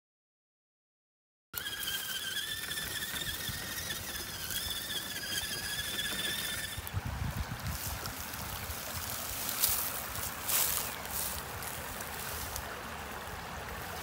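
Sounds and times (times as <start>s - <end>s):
electric motor and gears whining: 1.6s - 11.7s.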